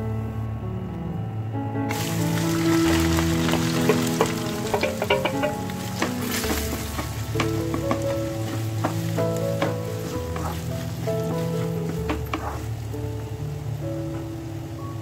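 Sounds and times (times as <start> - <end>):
onions sizzling in hot oil: 1.9 - 15.0
spatula scraping a pan: 2.8 - 12.8.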